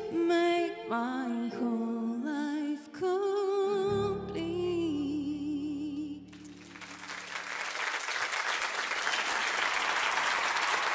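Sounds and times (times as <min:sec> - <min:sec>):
woman singing with vibrato: 0:00.0 - 0:06.5
audience applause: 0:06.4 - 0:10.9.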